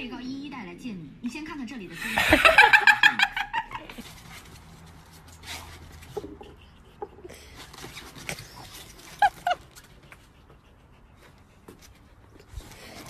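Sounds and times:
dog yelping: 8.4s - 9.8s.

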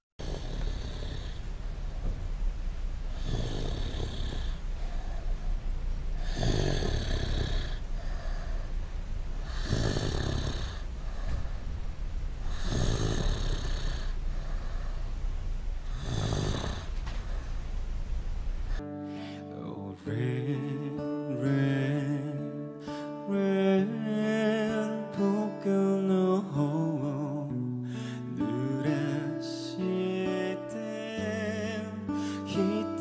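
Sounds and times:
man snoring: 0.2s - 1.5s, 3.1s - 5.3s, 6.2s - 8.7s, 9.4s - 11.5s, 12.4s - 15.0s, 15.8s - 17.0s.

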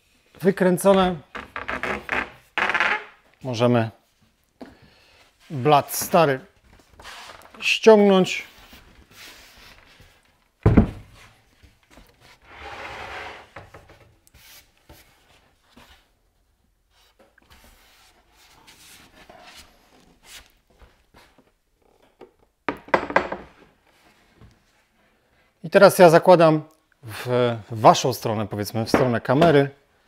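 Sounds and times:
wooden thump: 10.6s - 11.1s.

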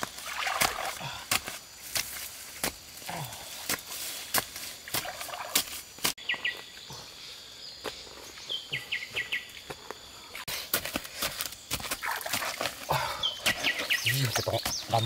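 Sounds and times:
stick striking wet mud: 0.0s - 2.8s
riverside ambience: 0.0s - 15.0s.

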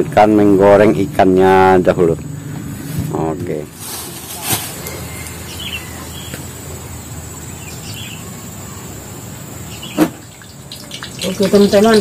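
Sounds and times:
birds chirping: 0.0s - 12.0s
high insect drone: 3.6s - 12.0s.

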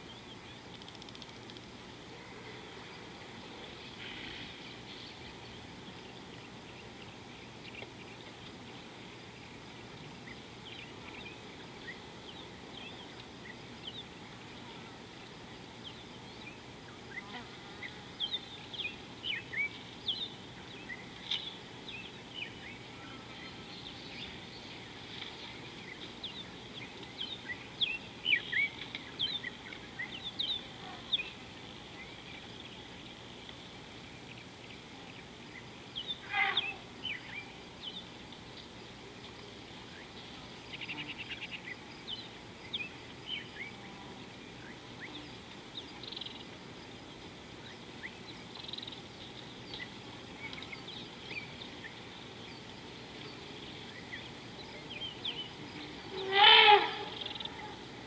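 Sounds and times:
steady background hiss: 0.0s - 58.0s
bird call sliding down in pitch: 56.2s - 57.4s.

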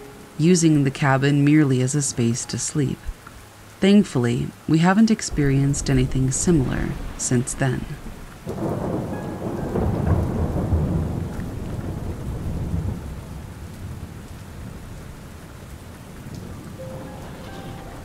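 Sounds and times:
steady rain: 0.0s - 18.0s
rolling thunder rumble: 5.3s - 18.0s.

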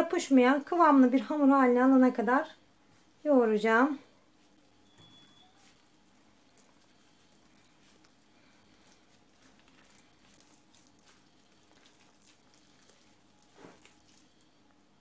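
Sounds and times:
hand mixing dough in plastic bowl: 3.0s - 15.0s.

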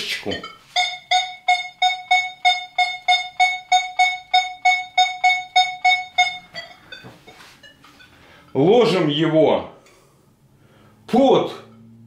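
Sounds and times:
metal detector short beeps: 0.4s - 7.1s.

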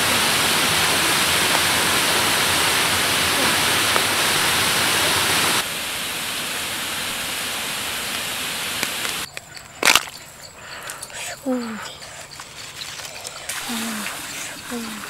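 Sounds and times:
waterfall rushing over rocks: 0.0s - 9.3s.

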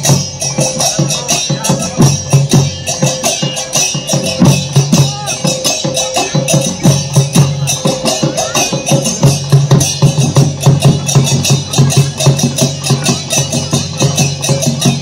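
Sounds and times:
fast drumming: 0.0s - 15.0s
jingling rattling percussion: 0.0s - 15.0s
wavering melody: 0.0s - 15.0s.

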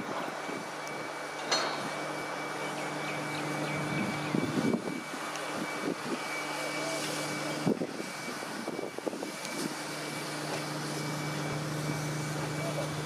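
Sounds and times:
locomotive engine drone: 0.0s - 13.0s.

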